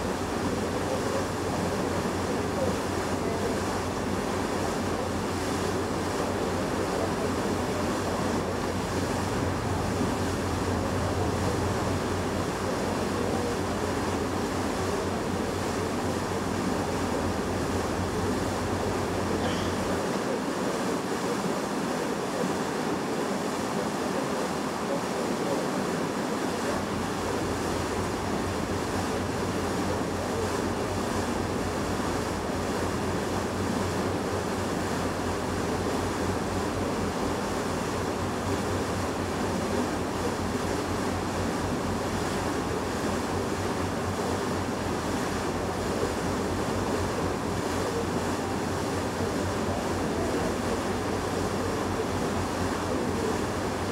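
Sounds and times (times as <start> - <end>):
low steady hum: 0.0 - 20.4, 26.7 - 53.9
wind and water rushing: 0.0 - 53.9.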